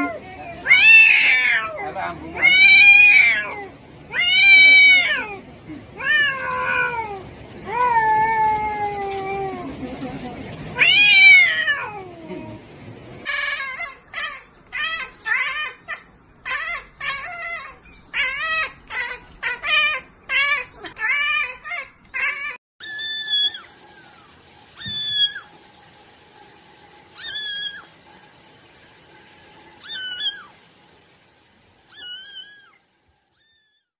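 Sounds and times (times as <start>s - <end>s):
cat meowing: 0.0s - 5.4s, 6.0s - 7.2s, 10.8s - 12.5s, 13.3s - 23.6s, 27.2s - 27.8s, 29.8s - 30.5s, 31.9s - 32.8s
cat yowling: 0.0s - 9.8s, 10.8s - 12.6s, 13.2s - 23.7s, 24.8s - 25.5s, 27.2s - 27.9s, 29.8s - 30.6s, 31.9s - 32.8s
kitten meowing high-pitched: 0.7s - 1.8s, 16.5s - 23.6s, 24.8s - 25.4s, 27.2s - 27.8s, 29.8s - 30.5s, 31.9s - 32.8s, 33.4s - 33.9s.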